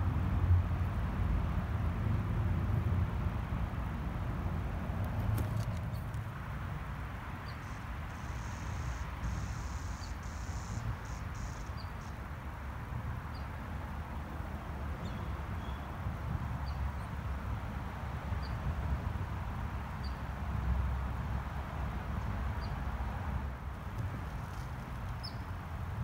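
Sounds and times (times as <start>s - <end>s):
faint high chirp: 7.5s - 12.2s
insects trilling: 7.6s - 12.1s.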